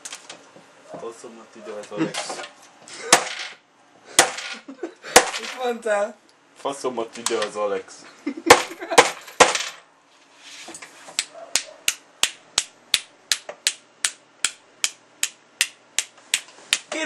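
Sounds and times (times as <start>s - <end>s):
hammer tapping nail: 11.6s - 17.0s.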